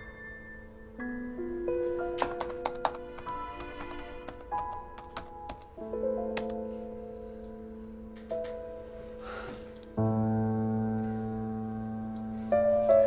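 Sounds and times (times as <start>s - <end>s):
soft piano music: 0.0s - 13.0s
laptop keyboard clicks: 2.2s - 5.7s.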